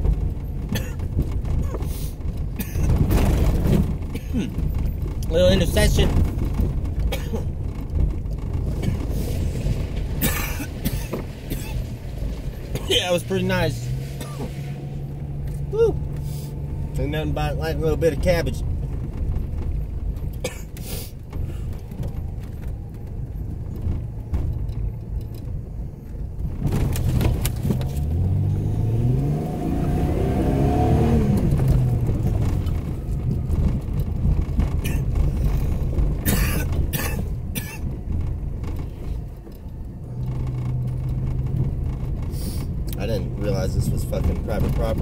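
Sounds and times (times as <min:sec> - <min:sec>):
sharp knocks and rattles: 0:00.0 - 0:12.9, 0:31.4 - 0:45.0
vehicle engine revving: 0:00.0 - 0:25.4, 0:26.5 - 0:45.0.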